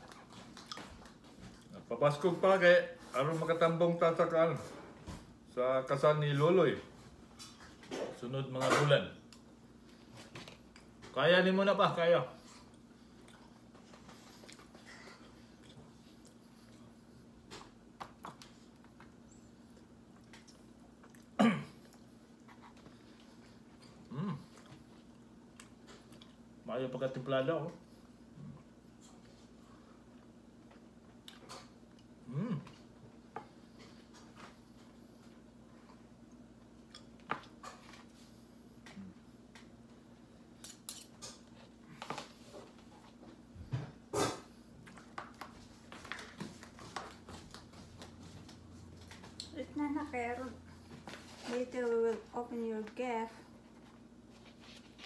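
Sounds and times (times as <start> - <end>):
faint hum: 0.0 - 55.0
man murmuring hmm: 24.0 - 24.6, 32.2 - 32.8
mouth sounds while eating: 31.2 - 32.9
man throat sound: 32.2 - 32.8
cutlery clicking and scraping on plate: 40.6 - 41.4.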